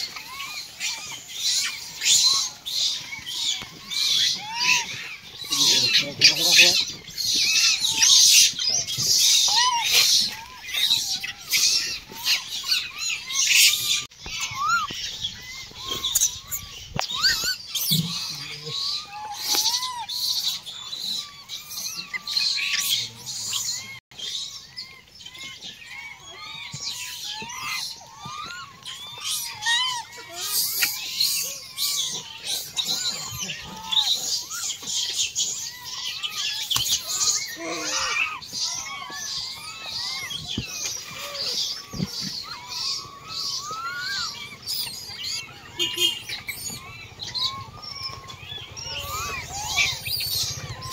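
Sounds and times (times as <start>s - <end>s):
animals chirping and squeaking: 0.0s - 50.9s.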